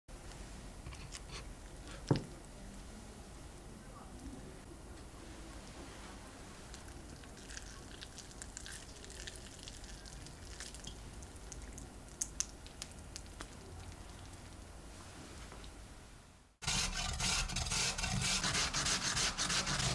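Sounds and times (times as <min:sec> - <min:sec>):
potato crust crackling: 0:06.6 - 0:14.8.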